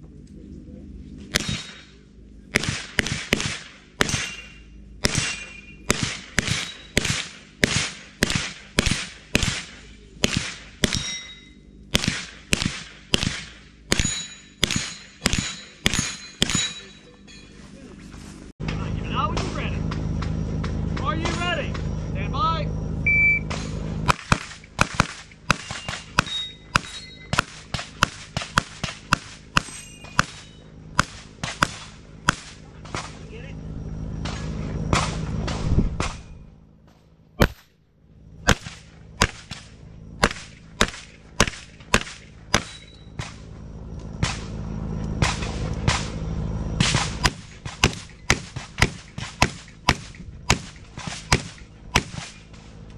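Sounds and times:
handgun shots: 0:01.3 - 0:01.9, 0:02.5 - 0:11.2, 0:11.9 - 0:16.8, 0:23.5 - 0:33.2, 0:37.4 - 0:37.7, 0:38.5 - 0:43.4
gunshots: 0:01.3 - 0:11.3, 0:11.9 - 0:16.9, 0:23.4 - 0:33.4, 0:34.2 - 0:36.4, 0:37.4 - 0:37.8, 0:38.4 - 0:43.5, 0:44.2 - 0:44.6, 0:45.2 - 0:46.2, 0:46.8 - 0:52.7.

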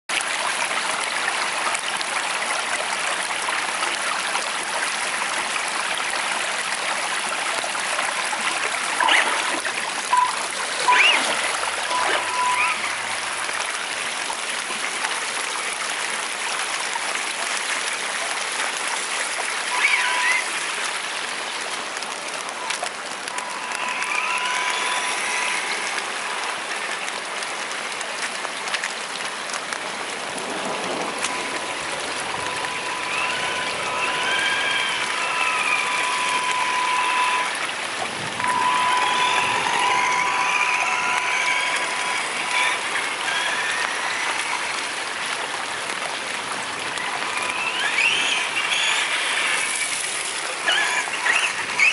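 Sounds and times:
rain on wet pavement: 0:00.1 - 0:51.9
brief high tones: 0:10.1 - 0:13.1, 0:38.4 - 0:44.2
short rising whines: 0:22.5 - 0:26.7, 0:31.0 - 0:44.9.

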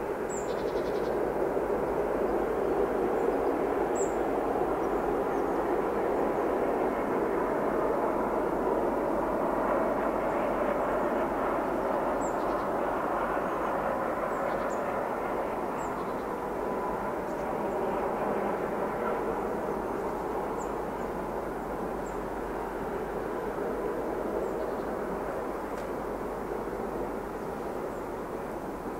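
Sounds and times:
distant diesel locomotive drone: 0:00.0 - 0:28.9.

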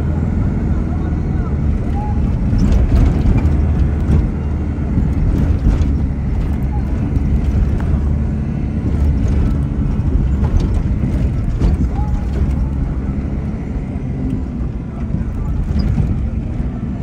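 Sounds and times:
vehicle engine and tyres rumbling: 0:00.0 - 0:17.0
bodywork rattling and clicking: 0:01.7 - 0:17.0.

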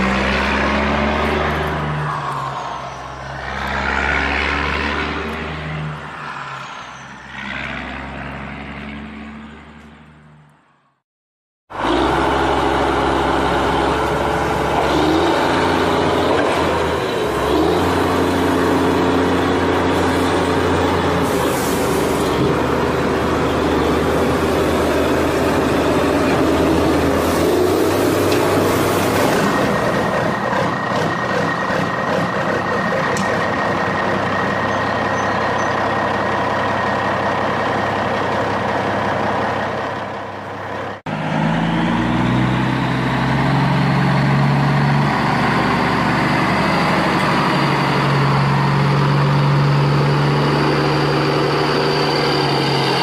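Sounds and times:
truck engine running: 0:11.7 - 0:53.0.

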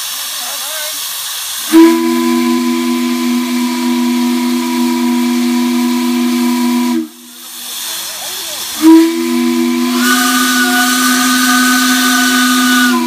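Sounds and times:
steam hissing: 0:00.0 - 0:13.0
steam whistle low chord: 0:01.7 - 0:07.4, 0:08.8 - 0:13.0.

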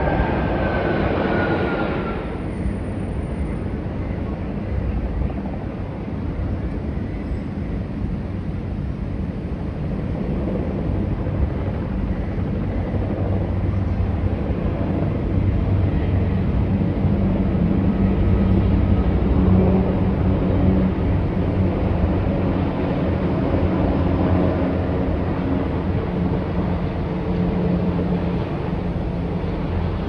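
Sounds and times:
helicopters flying past: 0:08.3 - 0:30.0.

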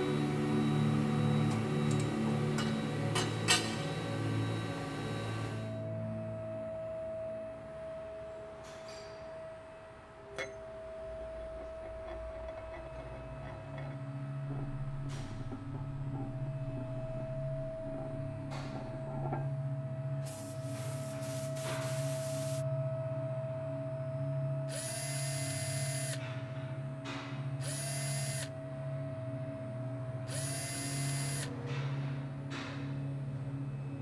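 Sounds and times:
cordless drill motor whine: 0:00.0 - 0:05.9, 0:20.3 - 0:22.6, 0:24.7 - 0:26.3, 0:27.6 - 0:28.6, 0:30.3 - 0:31.6
steady hum: 0:00.0 - 0:08.6, 0:09.4 - 0:34.0.

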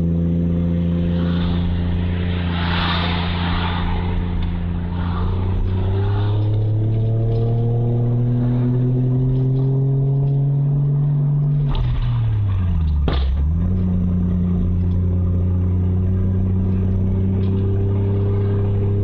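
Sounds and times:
car engine revving: 0:00.0 - 0:19.0
exhaust afterfire pop: 0:11.5 - 0:14.0.

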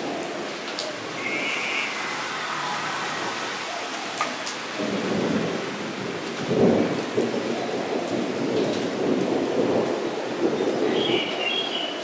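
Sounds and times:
rain falling on a puddle: 0:00.0 - 0:12.0.

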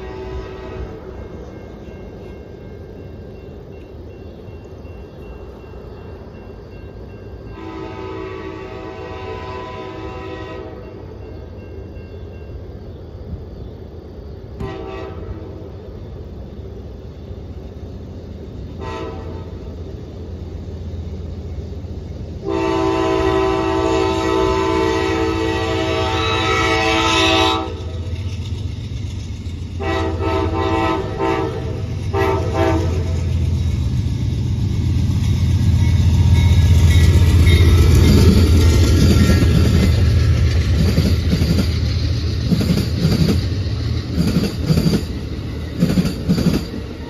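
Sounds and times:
train air horn blasts: 0:00.0 - 0:01.2, 0:07.5 - 0:11.0, 0:14.6 - 0:15.7, 0:18.8 - 0:19.7, 0:22.4 - 0:28.0, 0:29.8 - 0:33.4
diesel locomotive rumble: 0:00.0 - 0:47.0.

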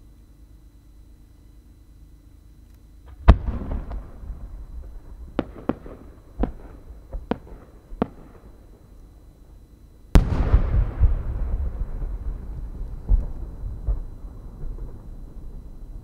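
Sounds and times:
firework launch bang: 0:03.1 - 0:04.2, 0:10.2 - 0:15.1
small firework cracks: 0:03.1 - 0:04.2, 0:04.8 - 0:08.5, 0:10.2 - 0:15.6
firework shell boom with echo: 0:10.2 - 0:11.6.

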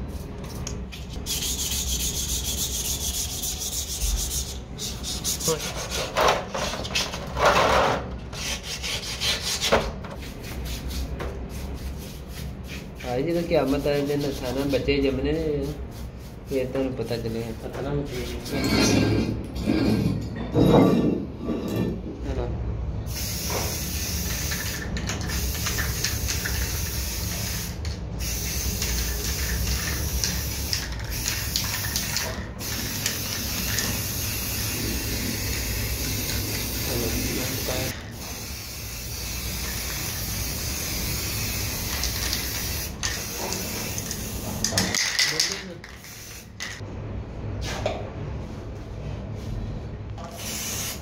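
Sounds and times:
spray paint can hissing: 0:00.0 - 0:06.0, 0:10.2 - 0:14.9, 0:15.6 - 0:16.6, 0:23.1 - 0:46.8, 0:50.2 - 0:51.0.

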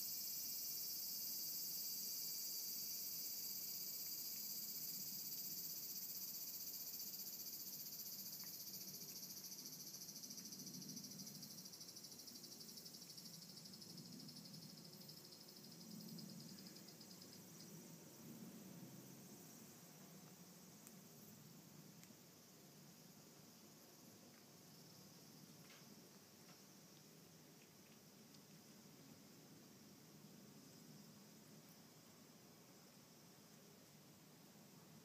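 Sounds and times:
insects trilling: 0:00.0 - 0:18.2.

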